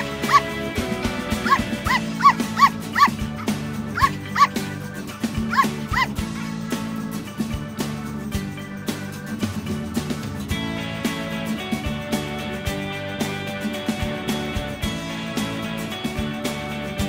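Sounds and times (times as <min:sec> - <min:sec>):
puppy yapping: 0:00.0 - 0:00.6, 0:01.3 - 0:04.8, 0:05.4 - 0:06.2
background music: 0:00.0 - 0:17.0.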